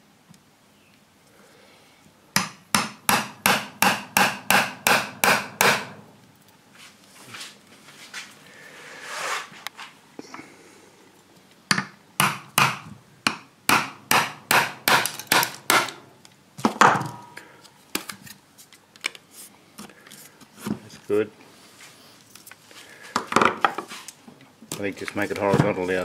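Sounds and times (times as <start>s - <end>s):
chisel being struck: 2.4s - 6.0s, 11.7s - 16.0s.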